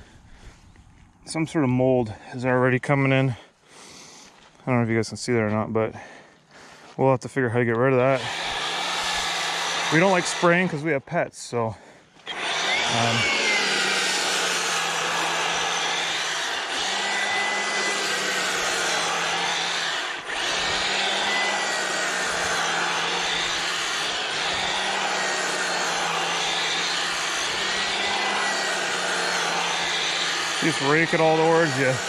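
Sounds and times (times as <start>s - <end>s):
electric motor whining: 8.0s - 11.0s, 12.2s - 32.0s.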